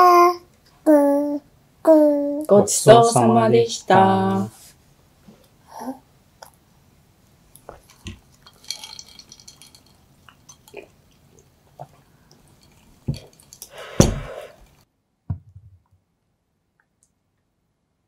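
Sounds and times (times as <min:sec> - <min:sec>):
tableware clatter: 0:07.8 - 0:10.8.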